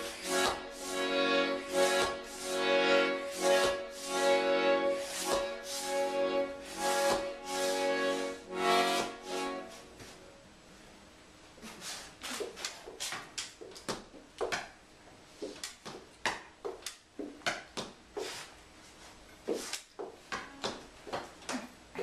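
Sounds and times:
tap shoes on wooden stage: 0:00.4 - 0:00.7, 0:01.9 - 0:02.3, 0:03.6 - 0:03.8, 0:05.2 - 0:05.6, 0:20.0 - 0:21.6.

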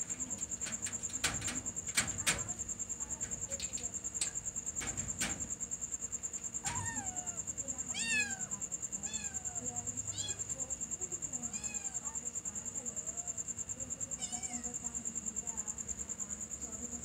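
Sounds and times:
metal gate rattling: 0:00.0 - 0:07.4
crickets chirping: 0:00.0 - 0:17.0
cat meowing: 0:06.6 - 0:10.4, 0:14.2 - 0:14.7.

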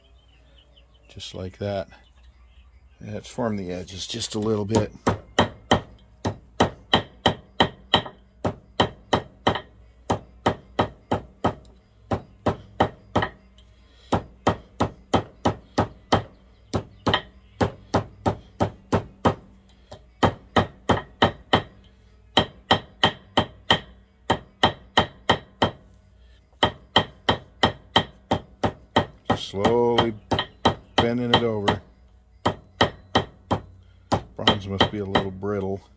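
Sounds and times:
hammer tapping metal washer: 0:04.7 - 0:08.2.

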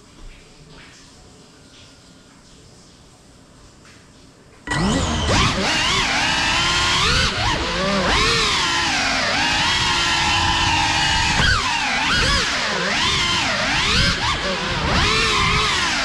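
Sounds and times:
drone motors whining: 0:04.7 - 0:16.0.

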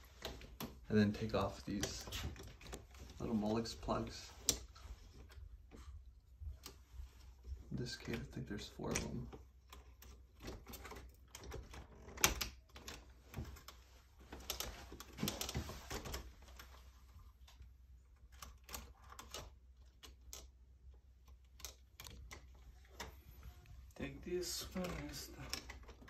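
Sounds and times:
plastic plugs clicking and rattling: 0:17.4 - 0:23.2.

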